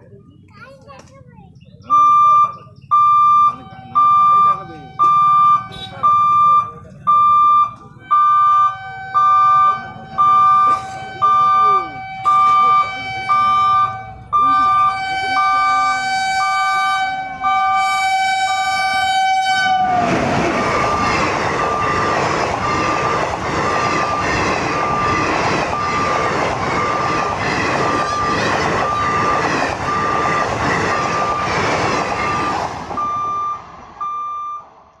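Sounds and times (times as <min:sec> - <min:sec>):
level crossing warning beeper: 0:01.8 - 0:34.8
train horn: 0:08.4 - 0:20.2
train wheels clattering over rails: 0:19.8 - 0:33.2.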